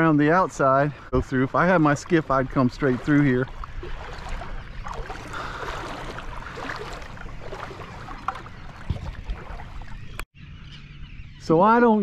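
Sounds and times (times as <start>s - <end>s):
water sloshing from wading: 1.0s - 10.3s.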